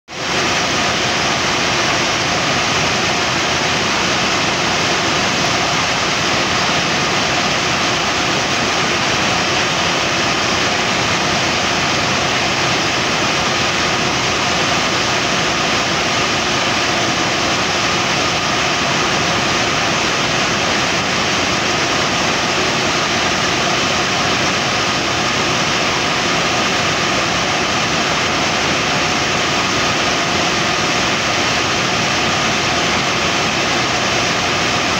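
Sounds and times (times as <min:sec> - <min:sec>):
compressor and engine running: 0:00.1 - 0:34.9.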